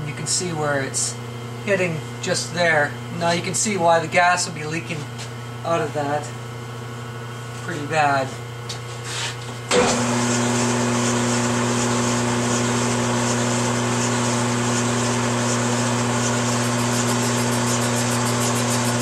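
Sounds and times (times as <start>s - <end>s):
metal lathe running: 9.7s - 19.0s.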